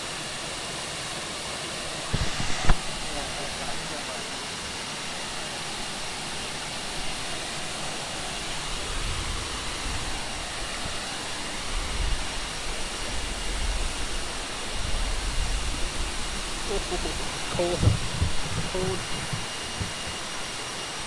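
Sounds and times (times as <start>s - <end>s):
waterfall rushing over rocks: 0.0s - 21.0s
low rumbles: 13.2s - 20.7s.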